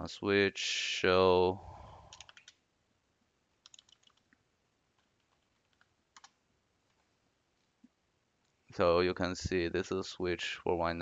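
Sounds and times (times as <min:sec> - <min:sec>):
faint keyboard keystrokes: 0:02.1 - 0:02.6, 0:03.6 - 0:04.4, 0:05.0 - 0:07.1.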